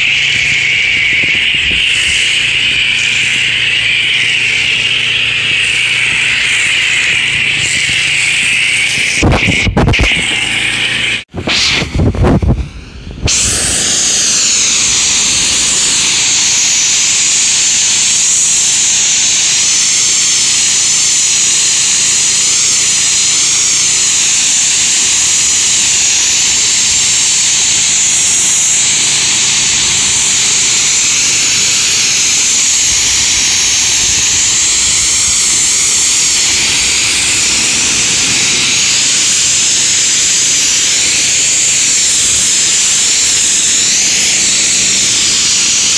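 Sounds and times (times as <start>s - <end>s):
pressure washer spraying water: 0.0s - 45.9s.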